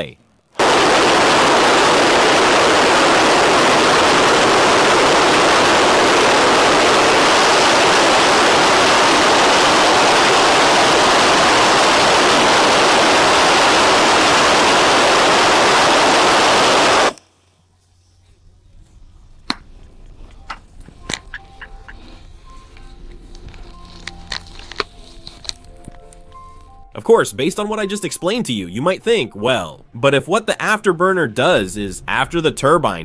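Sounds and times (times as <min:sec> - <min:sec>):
jet engine afterburner roar: 0:00.6 - 0:17.2.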